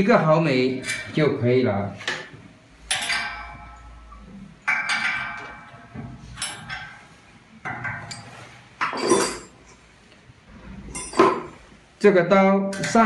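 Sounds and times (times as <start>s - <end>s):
metal knocks with ringing tone: 2.9s - 7.1s.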